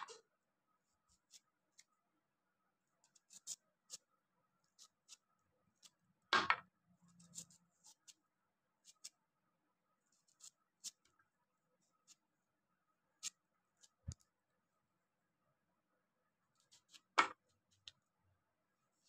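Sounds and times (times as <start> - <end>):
knife slicing onion: 3.1 - 4.1.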